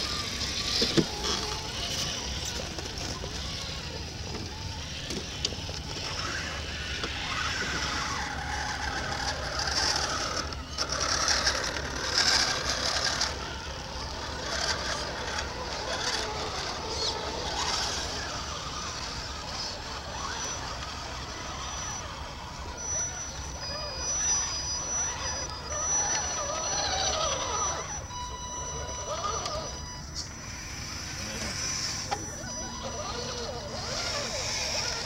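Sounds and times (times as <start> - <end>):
electric motors whining and grinding: 0.0 - 35.0
tyres scrabbling over loose dirt: 0.1 - 22.6.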